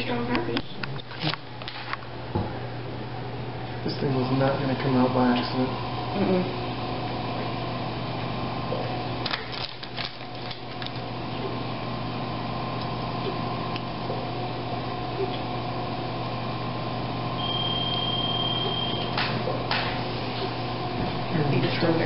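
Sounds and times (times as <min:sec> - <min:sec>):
electrical hum from equipment: 0:00.0 - 0:22.0
high-pitched electronic tone: 0:17.4 - 0:19.2.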